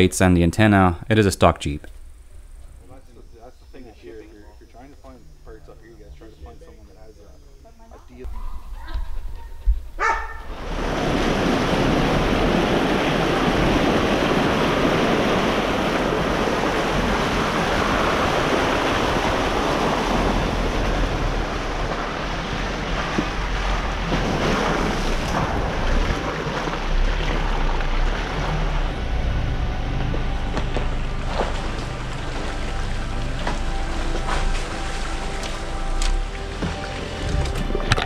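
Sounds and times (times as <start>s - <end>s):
tyres rolling over dirt: 9.0s - 38.0s.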